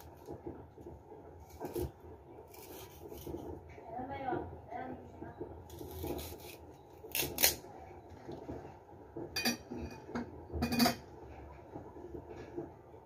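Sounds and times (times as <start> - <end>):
knife and dishes clinking: 9.4 - 11.1.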